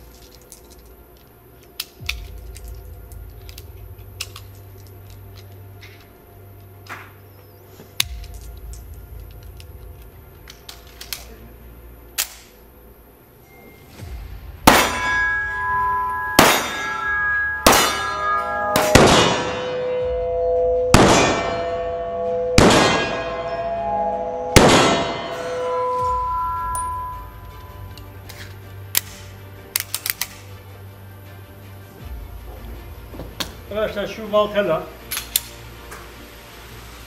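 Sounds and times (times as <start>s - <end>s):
pistol clicks: 8.0s - 11.4s, 12.1s - 12.6s, 27.9s - 30.4s, 35.1s - 35.6s
clanging metallic ring: 13.4s - 28.3s
pistol shots: 14.6s - 15.2s, 17.6s - 18.1s, 18.7s - 19.7s, 20.9s - 21.6s, 22.6s - 23.3s, 24.6s - 25.4s.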